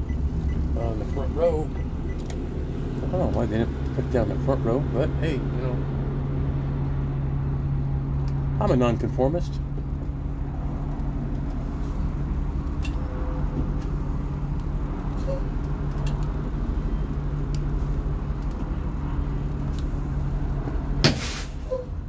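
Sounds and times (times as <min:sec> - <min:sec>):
bus engine running: 0:00.0 - 0:22.0
air brake hiss: 0:21.0 - 0:21.8.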